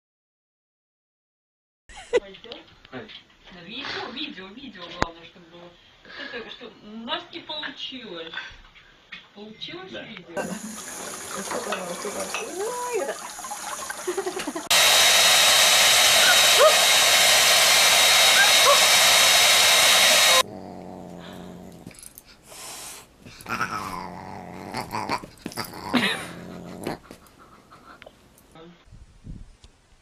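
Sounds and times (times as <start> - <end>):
hair dryer running: 14.1 - 20.5
dog crying and grumbling: 20.3 - 22.2, 23.3 - 27.8.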